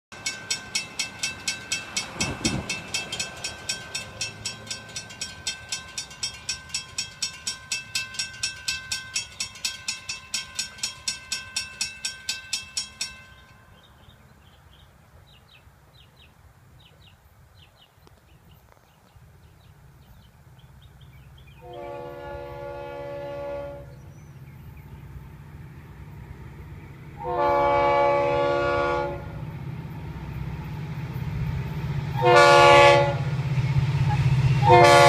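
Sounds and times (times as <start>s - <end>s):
crossing warning bells ringing: 0.1s - 14.7s, 27.2s - 35.0s.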